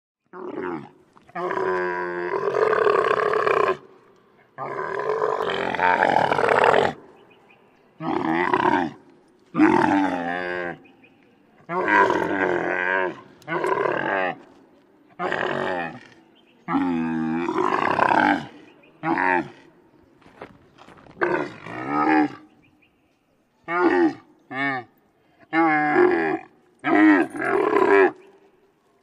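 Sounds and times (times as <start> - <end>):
camel groaning: 25.5 - 28.2.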